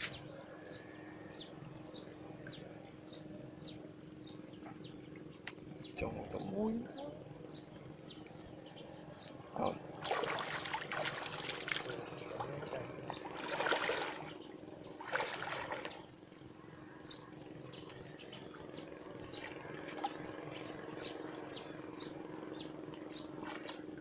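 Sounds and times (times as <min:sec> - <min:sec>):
water sloshing around wading legs: 0:10.0 - 0:16.0, 0:23.4 - 0:24.0.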